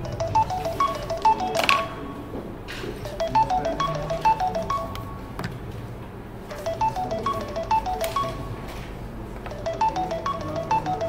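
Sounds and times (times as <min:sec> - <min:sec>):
short repeating melody: 0:00.0 - 0:02.2, 0:03.0 - 0:05.3, 0:06.5 - 0:08.6, 0:09.5 - 0:11.0.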